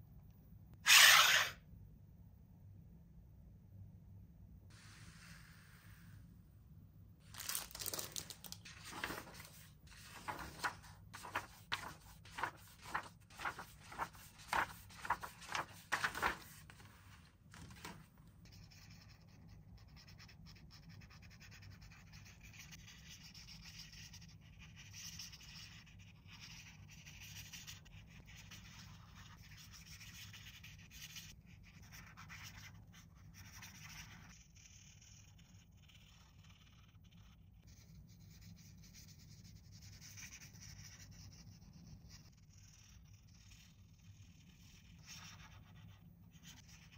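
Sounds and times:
packaging rustling: 7.2 - 9.6
packaging scraping: 7.3 - 9.5.

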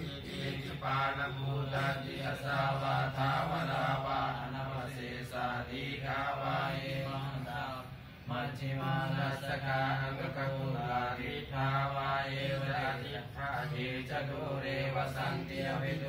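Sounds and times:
men chanting in low voices: 0.0 - 16.0.

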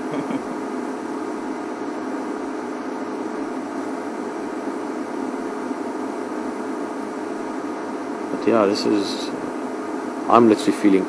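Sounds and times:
machine hum: 0.0 - 11.0.

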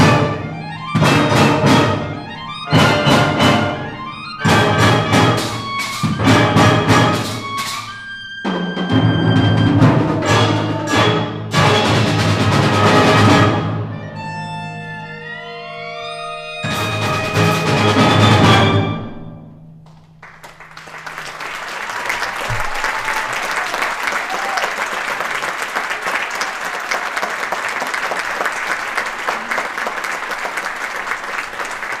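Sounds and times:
audience applause: 20.2 - 32.0.

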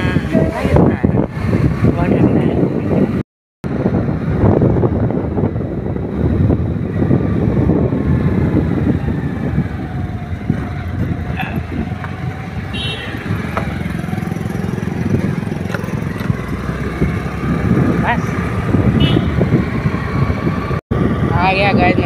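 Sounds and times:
wind rushing over microphone: 0.0 - 22.0
scooter engine running: 6.2 - 20.3.

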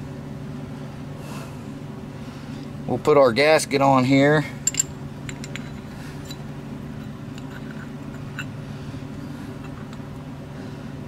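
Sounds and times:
low mechanical hum: 0.0 - 11.0
small metal parts clicking: 4.6 - 6.4, 7.0 - 8.5.

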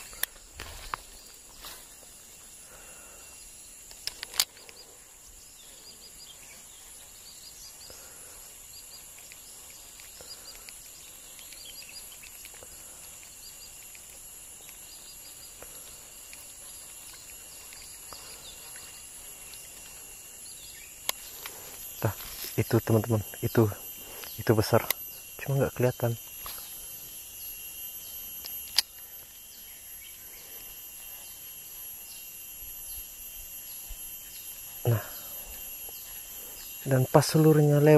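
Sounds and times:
high-pitched insect drone: 0.0 - 37.9
sharp clicks: 3.8 - 4.8, 28.4 - 29.0.

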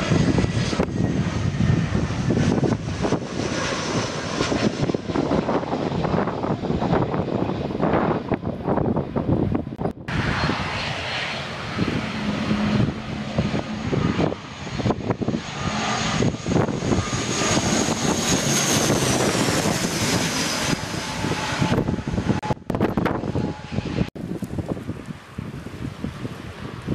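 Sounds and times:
propeller plane passing overhead: 0.0 - 26.9
wind buffeting microphone: 0.0 - 26.9.

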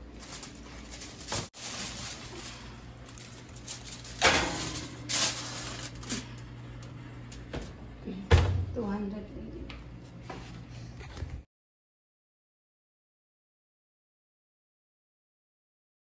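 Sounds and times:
foil crinkling and scraping: 0.0 - 6.4.

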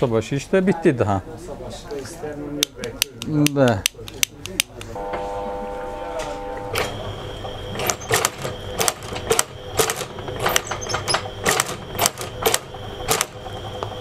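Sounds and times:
faint steady machine whine: 5.0 - 14.0
stitching machine clacking: 6.8 - 14.0.

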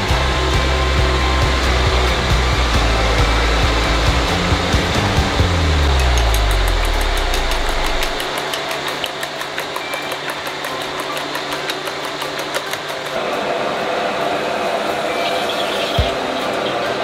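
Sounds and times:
mechanical hum: 0.0 - 17.0
chopsticks beating eggs in bowl: 5.8 - 13.2.

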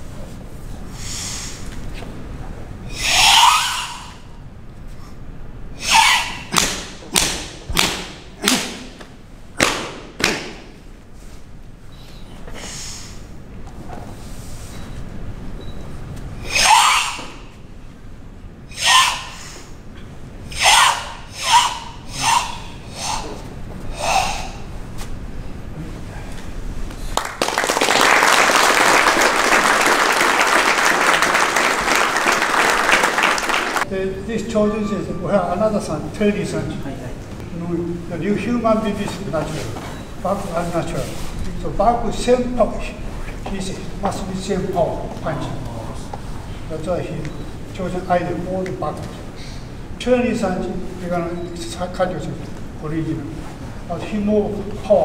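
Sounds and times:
forceful hissing exhale: 0.9 - 1.7, 12.5 - 13.3, 19.3 - 19.8
open-hand slaps on skin: 6.5 - 8.8, 9.6 - 10.6
audience applauding: 27.1 - 33.9.

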